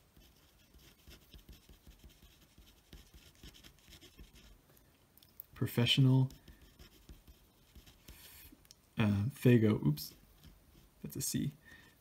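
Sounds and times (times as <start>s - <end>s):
pen scratching on paper: 0.0s - 4.6s, 6.2s - 8.2s.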